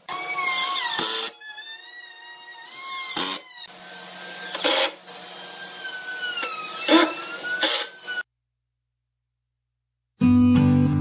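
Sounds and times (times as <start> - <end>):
rotary tool motor whining: 0.0 - 8.3.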